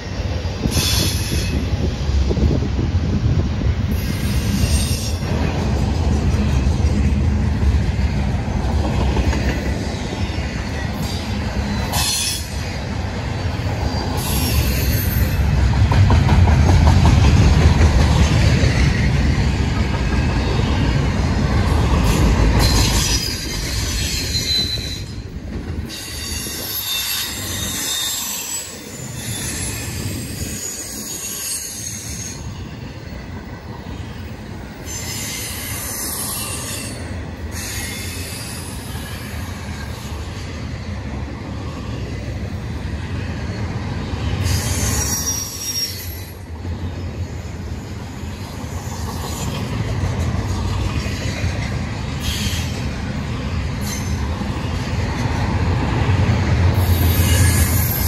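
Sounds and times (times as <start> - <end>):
freight train rumbling on rails: 0.0 - 58.0
high wheel squeal: 0.6 - 1.7, 13.4 - 15.4, 22.0 - 25.3, 25.9 - 32.7, 34.8 - 39.5, 44.4 - 46.5, 52.2 - 52.8, 56.8 - 58.0.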